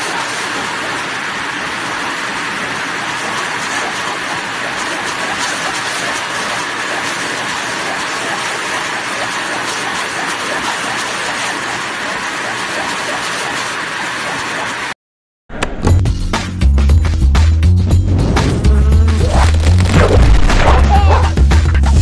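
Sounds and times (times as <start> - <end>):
dog dryer blowing air: 0.0 - 14.9.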